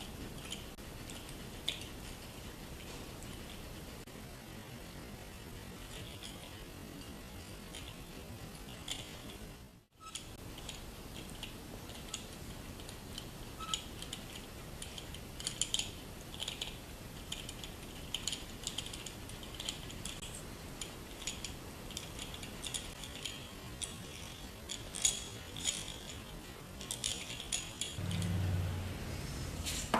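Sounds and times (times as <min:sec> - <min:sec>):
metal gears clicking: 0:20.8 - 0:28.7.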